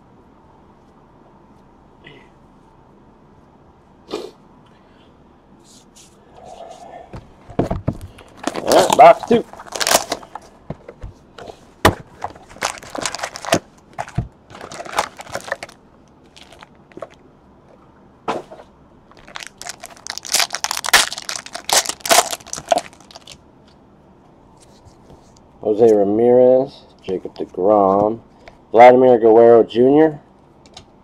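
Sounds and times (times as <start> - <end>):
foil wrappers crinkling and tearing: 8.4 - 10.4, 12.4 - 17.2, 19.2 - 23.4
cardboard scraping and rustling: 11.5 - 15.8.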